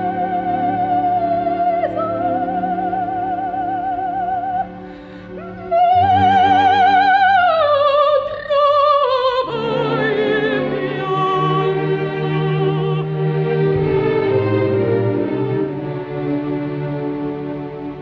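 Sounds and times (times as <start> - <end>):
operatic soprano singing: 0.0 - 13.7
orchestra playing: 0.0 - 18.0.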